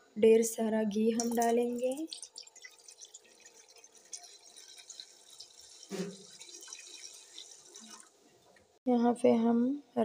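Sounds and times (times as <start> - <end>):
liquid trickling into metal pot: 1.2 - 8.2.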